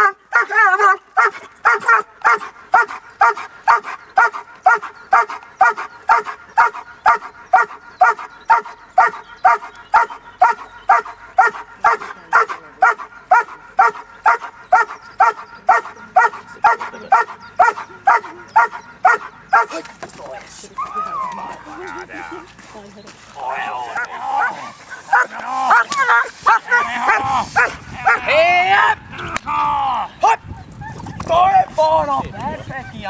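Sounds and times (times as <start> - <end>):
puppy barking rhythmically: 0.0 - 19.8, 24.4 - 28.3.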